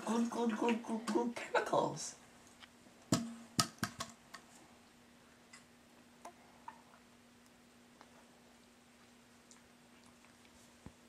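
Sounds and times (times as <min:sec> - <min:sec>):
faint steady hum: 0:00.0 - 0:11.0
plastic bottle clicks and knocks: 0:03.1 - 0:04.2.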